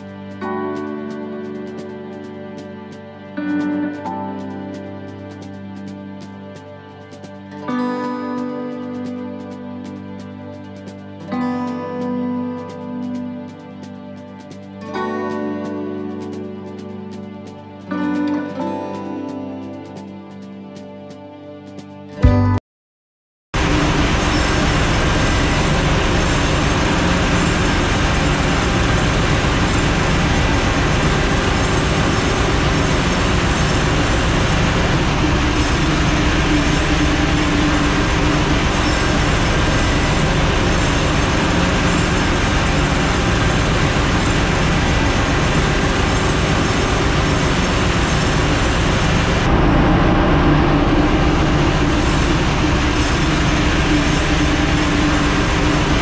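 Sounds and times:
engine room machinery: 23.6 - 56.0.

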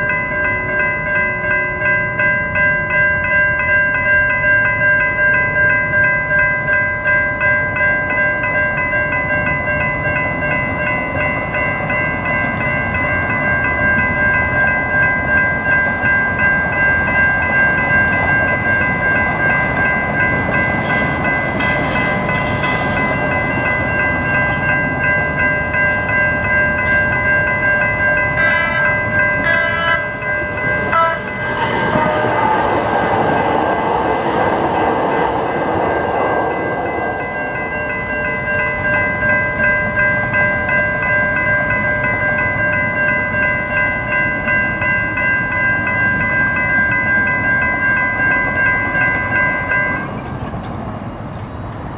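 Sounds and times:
railroad crossing bells ringing: 0.0 - 51.9
rush of passing noise: 30.3 - 38.1.

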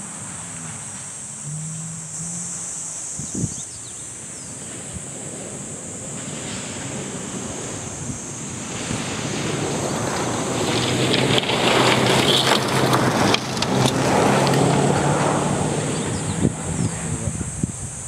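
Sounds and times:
rally car engine: 0.0 - 17.6
gravel and stones clattering: 8.8 - 15.1.

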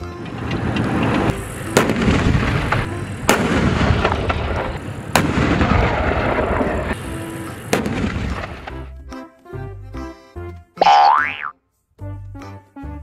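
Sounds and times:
tank diesel engine running: 0.0 - 9.0
loud sharp bangs: 1.7 - 7.0, 7.7 - 8.7.

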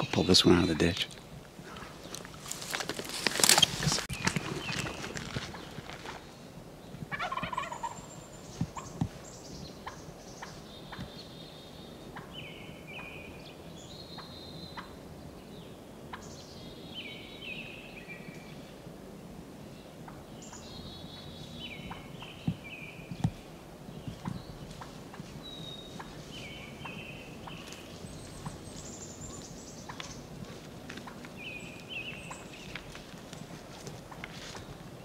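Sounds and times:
songbird singing: 0.0 - 35.0
turkey gobbling: 7.1 - 8.0.

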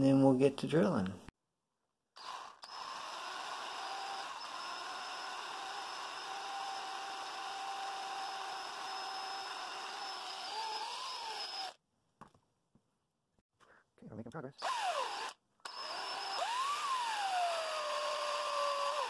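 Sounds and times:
electric drill drilling into metal: 2.2 - 11.8, 14.6 - 19.0.

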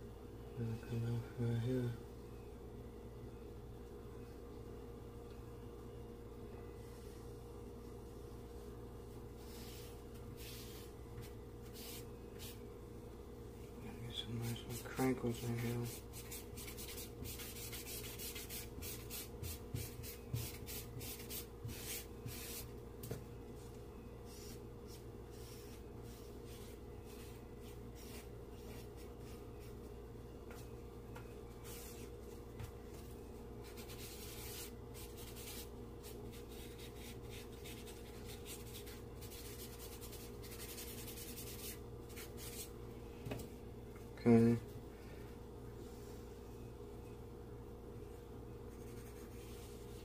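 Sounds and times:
charcoal scratching on paper: 14.7 - 22.7, 33.6 - 42.7, 48.7 - 50.0.

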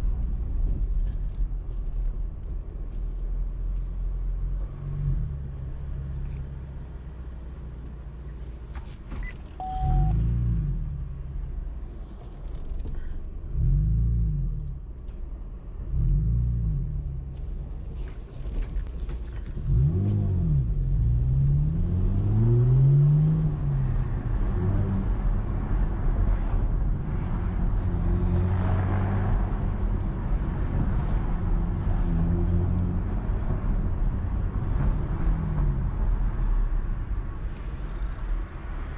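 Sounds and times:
car engine revving: 19.6 - 25.2.

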